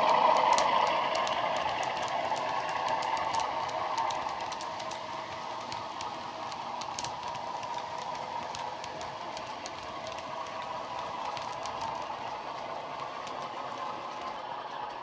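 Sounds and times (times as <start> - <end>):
model train humming: 0.0 - 15.0
wheels clicking over rail joints: 0.0 - 15.0.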